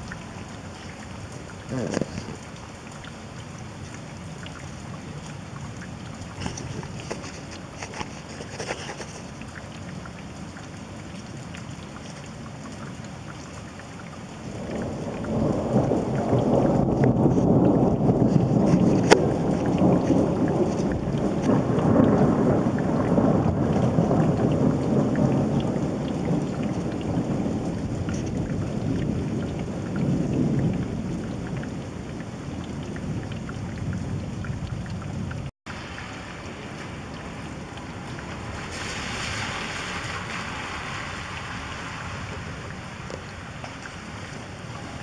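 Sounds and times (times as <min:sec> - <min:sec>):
steady rain hiss: 0:00.0 - 0:45.0
rolling thunder: 0:14.5 - 0:32.0, 0:36.1 - 0:45.0.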